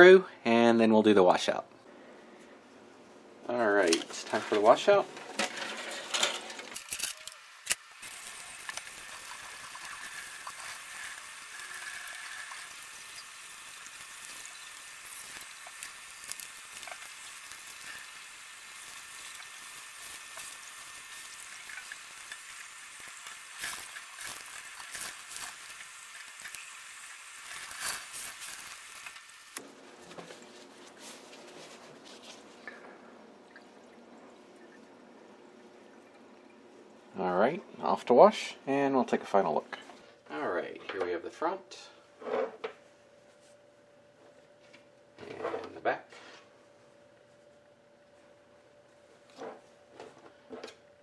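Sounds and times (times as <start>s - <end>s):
faucet running water into sink: 8.0s - 29.6s
foil clicks and rustles: 8.0s - 32.6s.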